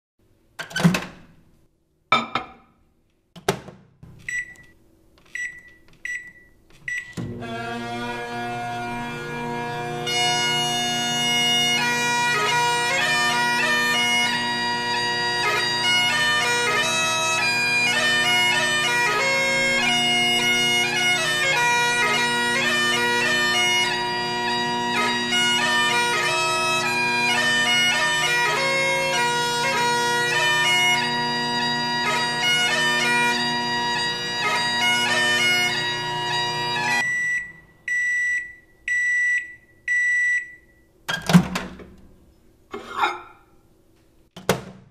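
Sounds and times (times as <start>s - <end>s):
bagpipes playing over a drone: 7.4s - 37.0s.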